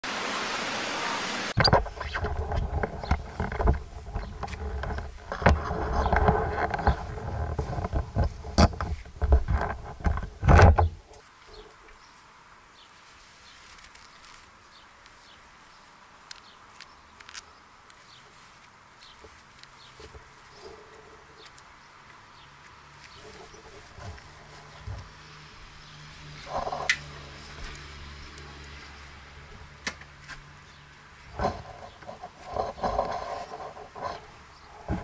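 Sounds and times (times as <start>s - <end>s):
irregular knocks and rustling: 1.6s - 11.8s, 23.0s - 25.3s, 31.2s - 35.0s.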